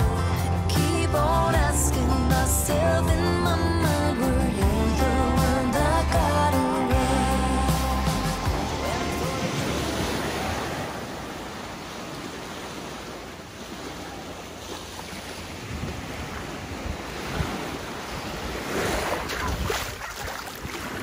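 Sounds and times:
surf waves breaking on shore: 0:00.0 - 0:21.0
wind buffeting microphone: 0:15.4 - 0:21.0.

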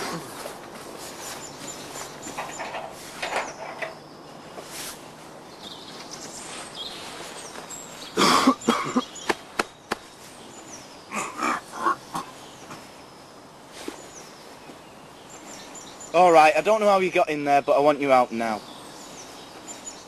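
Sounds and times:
faint birdsong: 0:00.0 - 0:20.0
animal-like growls and grunts: 0:11.1 - 0:12.3.

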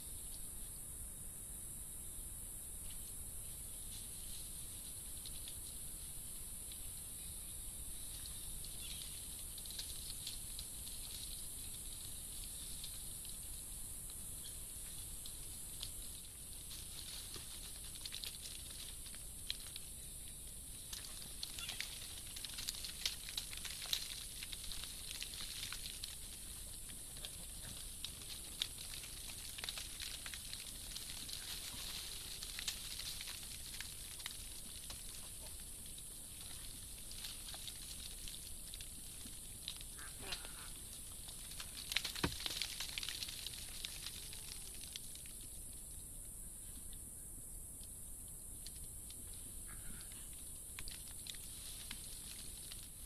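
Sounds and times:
high-pitched hiss: 0:00.0 - 0:53.0.

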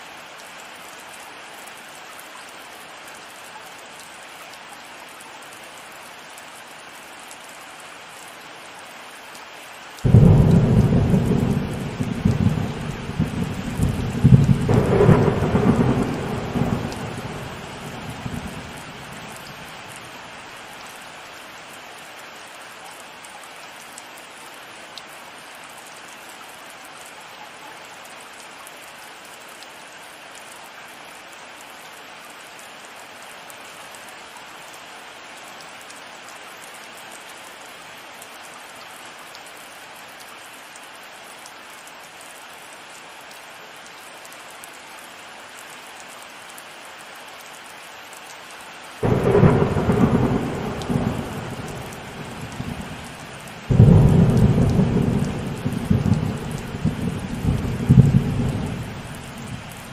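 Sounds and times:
steady rain falling: 0:00.0 - 0:59.9
thunder clap rumbling: 0:10.1 - 0:19.6, 0:49.0 - 0:59.7.

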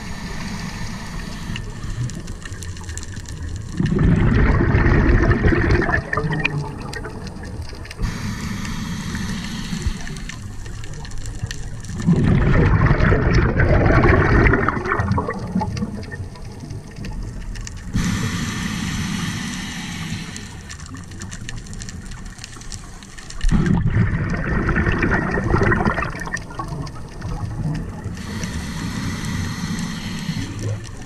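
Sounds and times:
steady underwater hiss: 0:00.0 - 0:31.0
exhaled breath bubbling underwater: 0:03.7 - 0:10.8, 0:11.5 - 0:21.0, 0:23.4 - 0:31.0.

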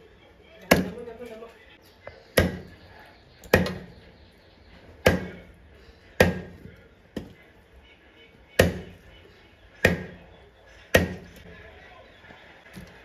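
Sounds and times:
knife chopping on wooden block: 0:03.5 - 0:03.9, 0:05.0 - 0:05.4, 0:06.2 - 0:07.3, 0:08.6 - 0:08.9, 0:09.8 - 0:10.2, 0:11.0 - 0:11.3.

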